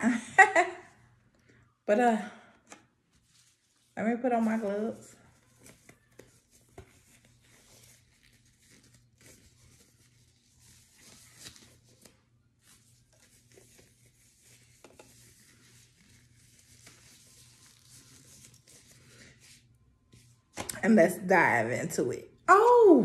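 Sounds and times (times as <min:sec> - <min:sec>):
plastic gloves rustling: 0:02.9 - 0:20.6.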